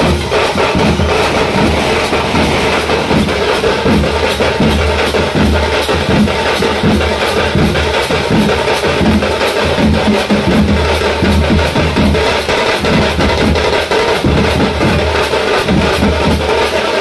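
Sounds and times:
percussion-heavy music: 0.0 - 17.0.

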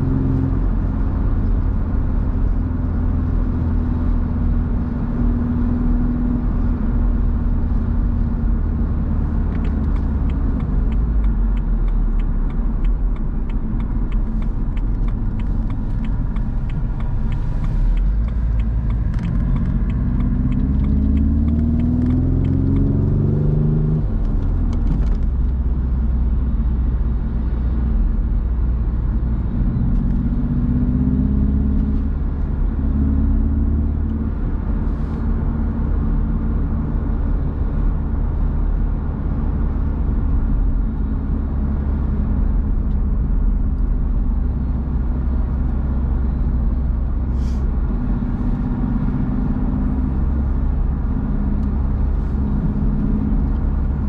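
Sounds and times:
car engine revving: 0.0 - 26.1, 29.4 - 35.8
wind: 0.0 - 54.0.

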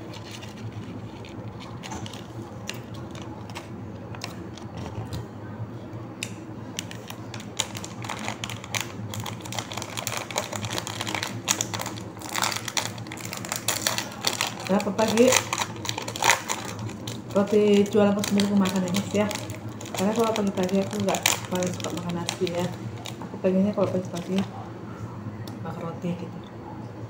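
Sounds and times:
plastic wrappers crinkling: 0.0 - 5.2, 6.7 - 24.6.

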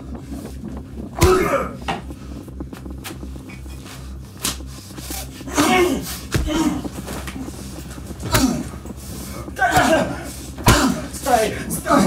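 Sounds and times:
low steady pulsing: 0.0 - 12.0
man grunting and crying out: 1.1 - 2.0, 5.3 - 7.2, 8.2 - 12.0.

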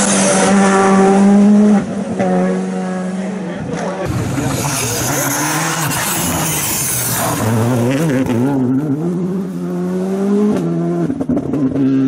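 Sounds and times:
rally car engine accelerating: 0.0 - 12.0
tyres hissing and spraying dirt: 4.1 - 7.9.

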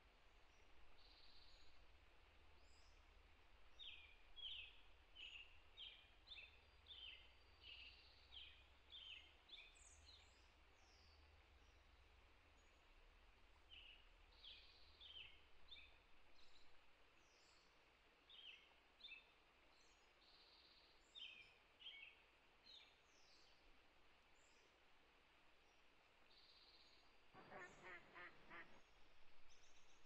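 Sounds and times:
small birds chirping: 25.7 - 30.0.

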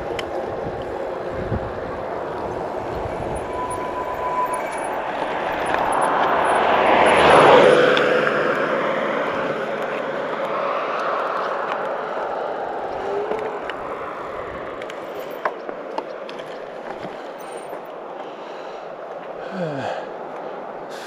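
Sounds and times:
aircraft engine drone: 0.0 - 15.6.

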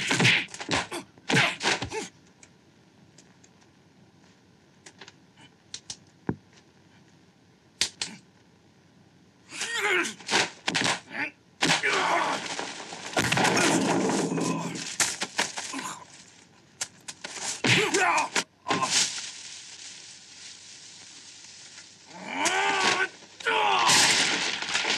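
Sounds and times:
fighters shouting and grunting: 0.0 - 2.1, 9.5 - 10.2, 11.1 - 12.4, 17.6 - 18.9.

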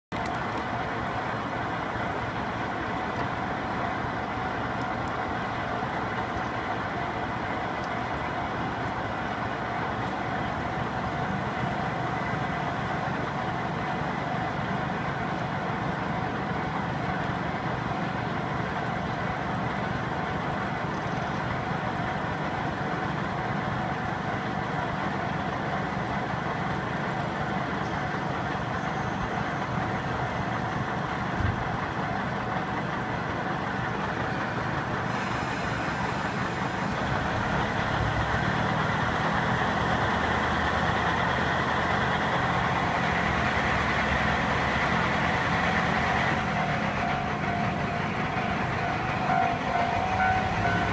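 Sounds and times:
diesel railcar engine idling: 0.1 - 50.9.

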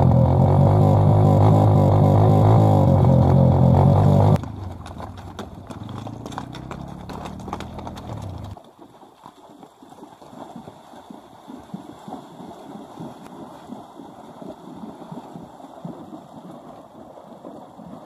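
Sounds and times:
low engine hum: 0.0 - 8.6
horse hooves clopping on rocks: 4.4 - 13.6.

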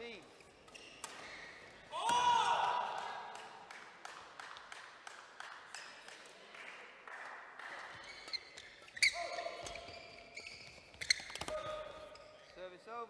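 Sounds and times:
shoes squeaking on court: 0.0 - 1.9, 7.9 - 12.6
rackets striking shuttlecocks: 0.4 - 6.2, 7.8 - 12.4.

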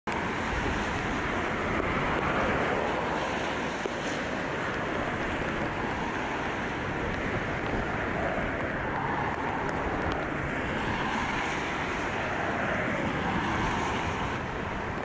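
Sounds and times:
jet engine roar: 0.1 - 15.0
wind buffeting microphone: 0.1 - 15.0.

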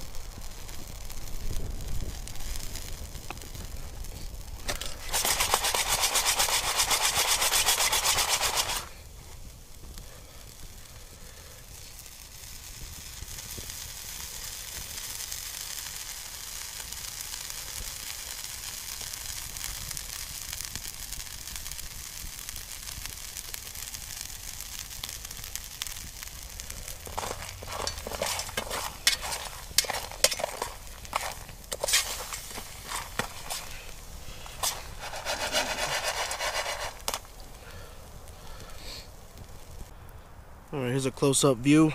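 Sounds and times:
water sizzling in a frying pan: 0.0 - 39.9
spoon scraping a pan: 4.7 - 8.8, 27.0 - 37.2.

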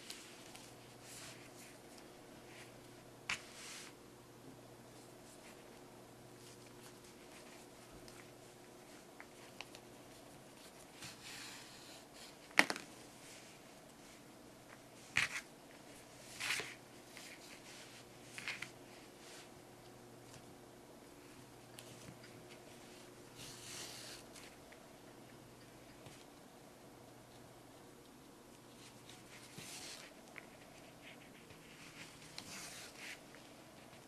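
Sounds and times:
soft rustles: 0.0 - 4.0, 4.9 - 19.6, 28.5 - 34.0
faint steady hum: 0.0 - 34.0.

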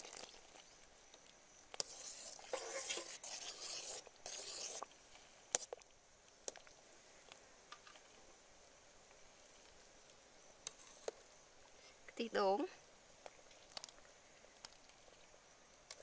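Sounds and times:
ladle scraping and sloshing in pot: 1.7 - 4.9.

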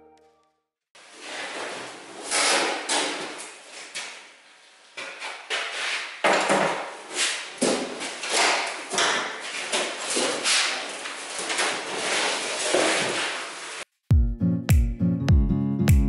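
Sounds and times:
metal door scraping: 8.1 - 13.7.

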